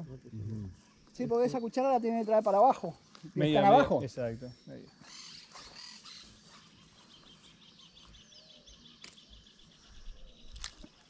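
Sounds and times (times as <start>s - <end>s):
bird trilling: 5.0s - 6.4s.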